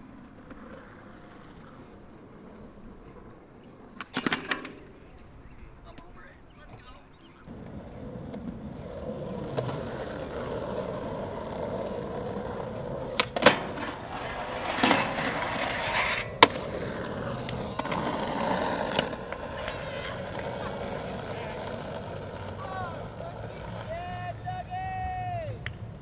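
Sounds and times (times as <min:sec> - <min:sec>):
skateboard wheels rolling on concrete: 0:00.0 - 0:26.0
skateboard grinding metal rail: 0:03.9 - 0:05.1, 0:07.5 - 0:23.9
skateboard landing clack: 0:07.5 - 0:22.6
skateboard ollie pop: 0:07.5 - 0:22.6.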